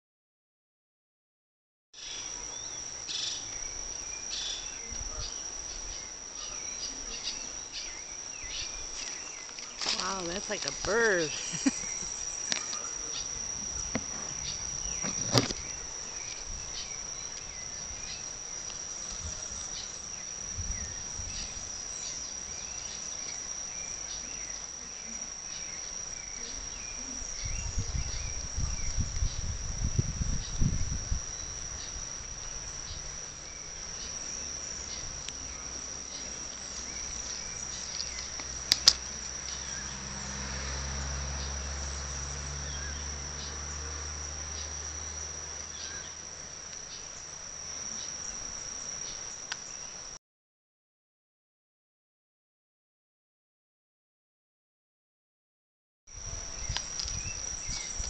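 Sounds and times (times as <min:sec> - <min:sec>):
insects chirring: 0:02.0 - 0:50.2, 0:56.1 - 0:58.0
sharp clicks: 0:38.0 - 0:39.1.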